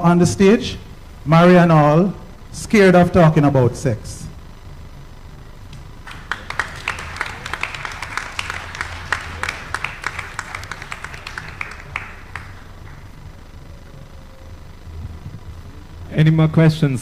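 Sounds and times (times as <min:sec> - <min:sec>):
audience applause: 0:06.0 - 0:13.6.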